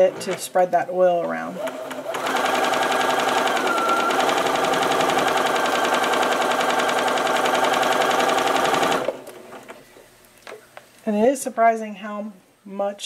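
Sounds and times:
sewing machine stitching: 1.4 - 9.3
sewing machine motor whine: 1.6 - 9.2.

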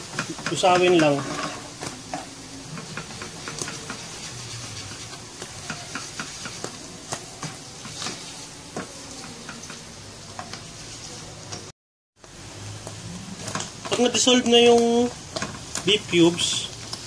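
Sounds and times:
mushrooms sizzling in wok: 0.0 - 17.0
plastic spatula scraping pan: 0.2 - 2.0, 2.7 - 9.7.

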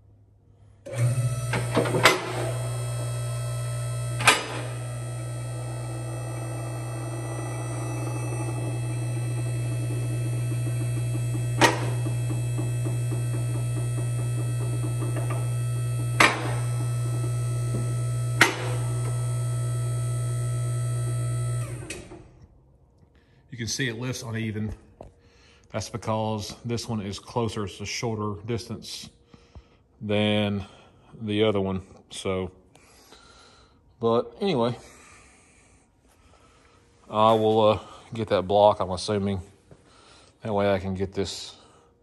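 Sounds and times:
hydraulic pump motor running: 0.8 - 22.4
car lift clacks: 1.0 - 3.2, 4.0 - 6.3, 7.0 - 19.3.

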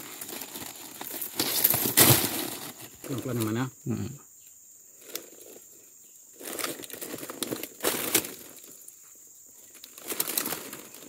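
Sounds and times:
fruit bunches rustling in basket: 0.0 - 3.6, 6.4 - 11.0.

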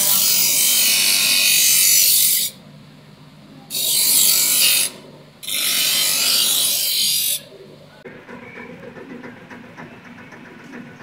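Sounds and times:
bench grinder grinding steel: 0.0 - 2.6, 3.7 - 7.5.

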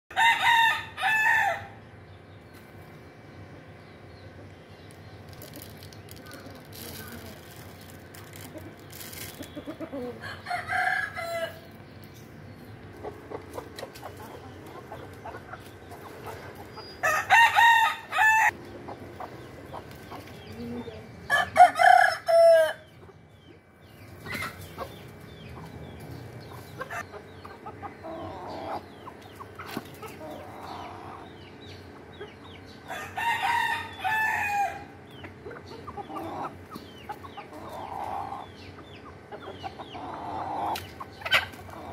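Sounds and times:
roosters crowing: 0.1 - 2.0, 8.7 - 11.8, 16.0 - 18.6, 21.2 - 23.0, 27.7 - 29.2, 32.7 - 36.7
hens clucking softly: 8.3 - 10.6, 12.8 - 17.0, 22.9 - 32.7, 35.1 - 41.9.

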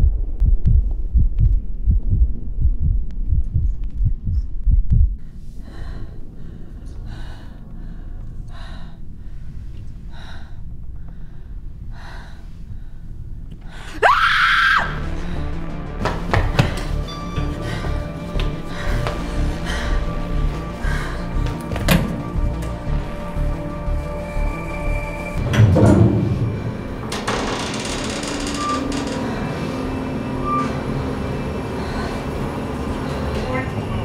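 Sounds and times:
heartbeat-like thumping: 0.0 - 5.3, 15.4 - 23.0
loud rising shriek: 24.7 - 32.0.

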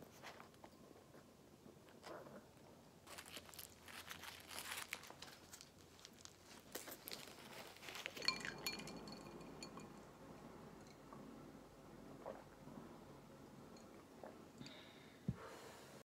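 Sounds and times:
paper napkin crinkling: 3.0 - 8.3
glass clink: 8.2 - 10.1, 10.8 - 11.0, 13.7 - 14.8.

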